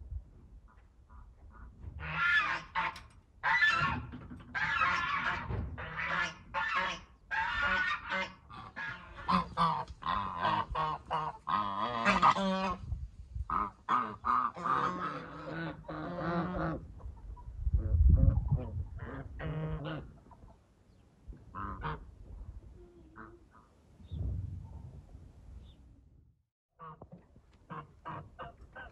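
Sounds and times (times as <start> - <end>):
geese honking: 1.1 - 12.8, 13.5 - 16.8.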